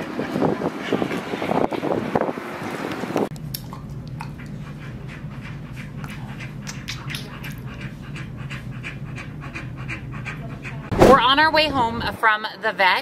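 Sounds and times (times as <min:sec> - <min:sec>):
dog panting: 0:00.0 - 0:02.1, 0:03.7 - 0:10.9.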